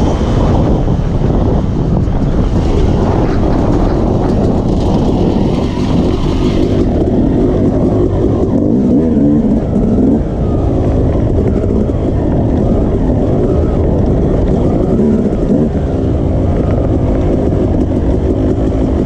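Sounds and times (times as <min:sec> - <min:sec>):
dirt bike engine revving: 0:02.4 - 0:10.6.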